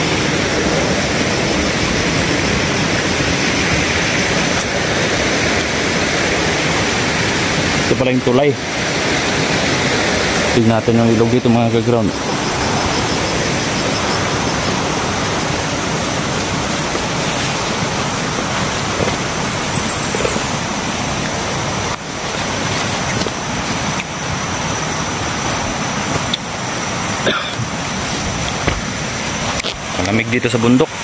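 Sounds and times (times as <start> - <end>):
river rushing: 0.0 - 31.0.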